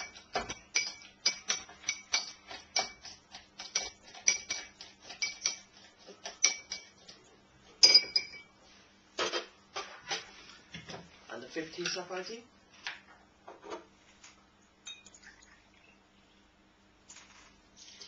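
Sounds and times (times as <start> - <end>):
muddler clinking in glass: 14.8 - 15.3.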